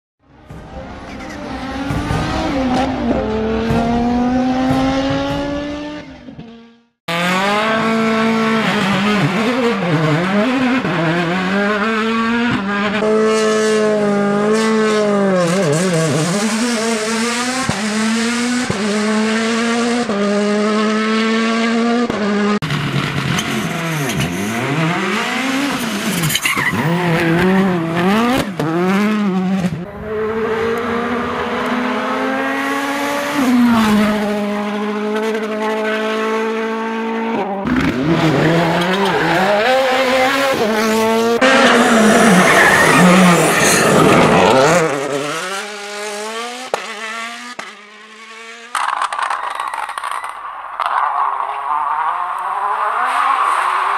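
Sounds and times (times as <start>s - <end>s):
rally car engines revving: 0.2s - 53.9s
tyre squeal: 25.7s - 27.8s, 41.4s - 44.6s.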